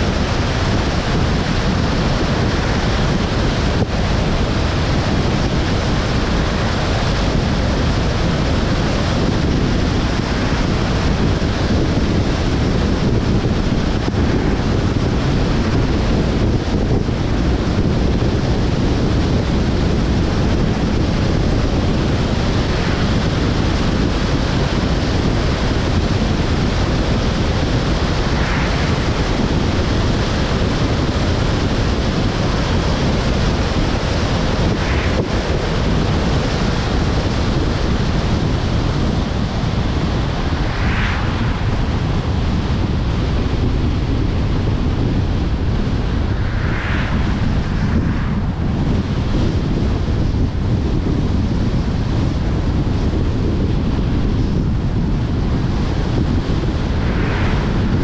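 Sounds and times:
wind on microphone: 0.0 - 58.0
car tyre noise: 20.6 - 50.8, 55.9 - 58.0.

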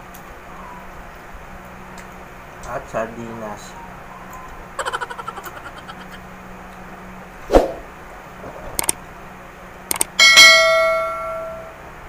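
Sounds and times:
bell chime: 10.2 - 11.7.

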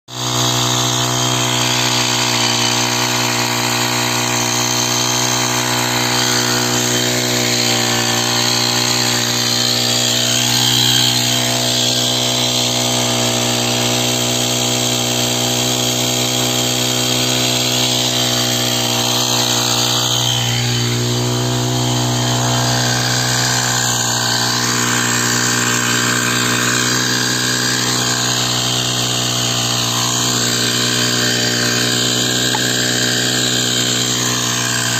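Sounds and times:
power sprayer engine droning: 0.1 - 34.9.

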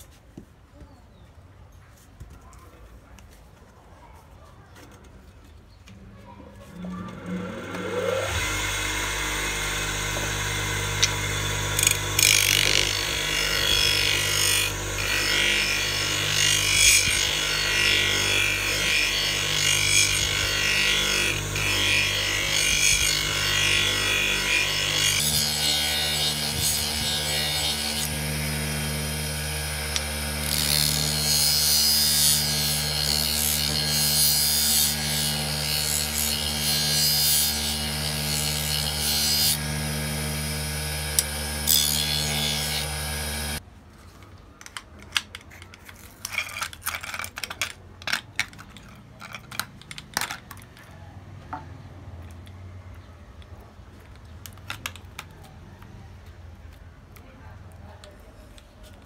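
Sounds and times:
grinding wheel humming: 6.7 - 43.6.

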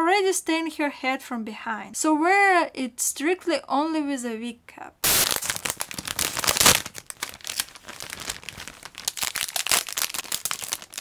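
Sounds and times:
plastic bag crinkling: 5.0 - 11.0.

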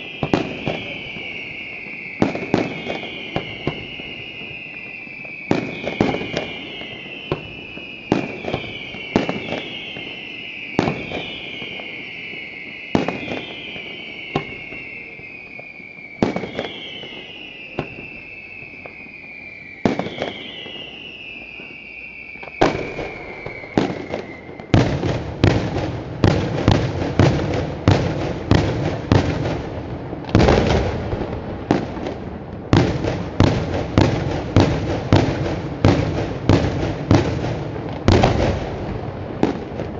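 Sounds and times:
firework bangs: 0.0 - 39.9
firework shells whistling: 0.0 - 39.9.

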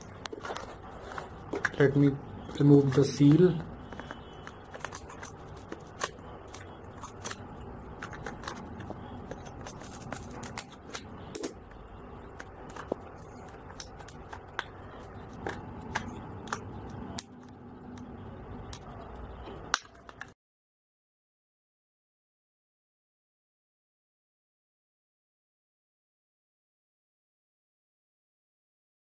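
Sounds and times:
plastic package clicks and crackles: 0.0 - 11.6, 12.4 - 18.1.

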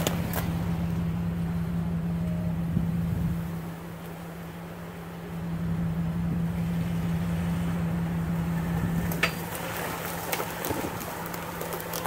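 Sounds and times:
branches cracking and snapping: 0.0 - 1.0, 8.6 - 12.0
engine droning at low speed: 0.0 - 12.0.

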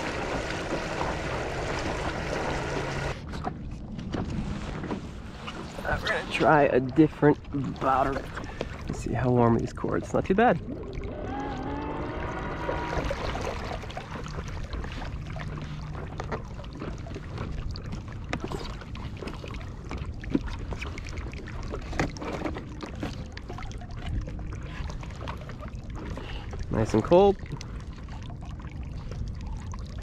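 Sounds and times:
water lapping against board: 0.0 - 30.0.

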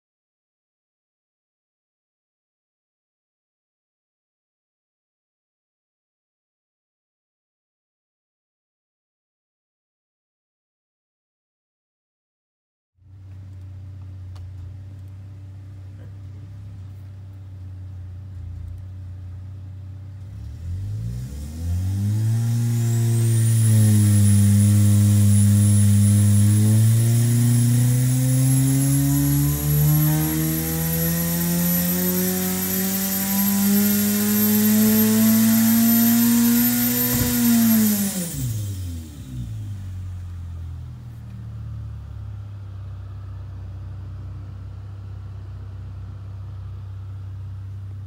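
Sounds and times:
turbocharged engine revving: 14.3 - 45.6
high whine: 21.4 - 40.5.

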